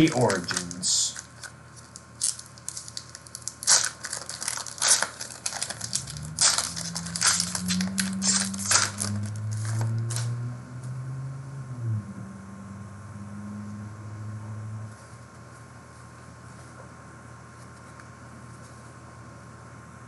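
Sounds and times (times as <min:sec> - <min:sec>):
foil wrapper tearing and crinkling: 0:00.0 - 0:10.2.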